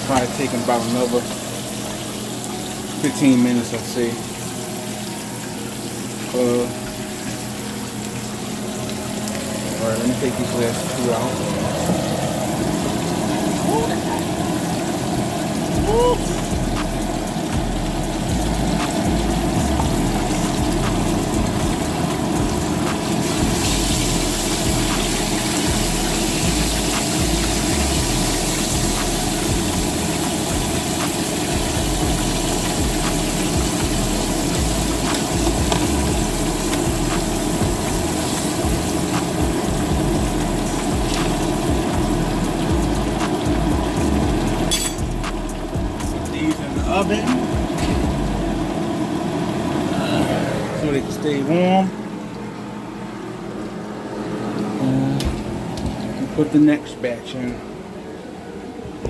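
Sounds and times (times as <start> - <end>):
chicken sizzling in oil: 0.0 - 51.4
oil popping: 6.0 - 49.4.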